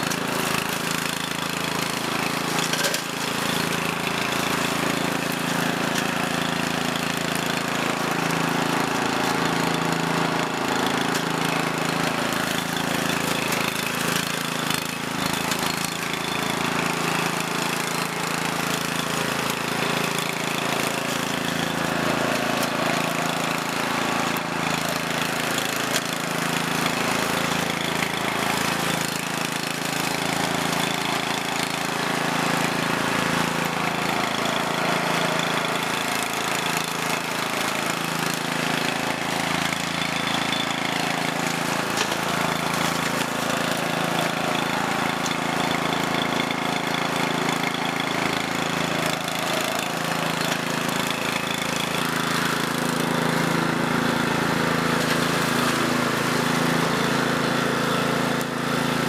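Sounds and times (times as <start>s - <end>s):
gasoline engine running: 0.0s - 59.0s.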